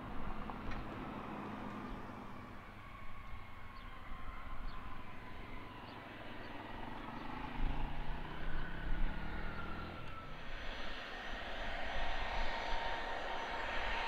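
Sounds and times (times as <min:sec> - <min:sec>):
jet engine whine: 0:00.0 - 0:14.0
low rumble: 0:07.9 - 0:14.0.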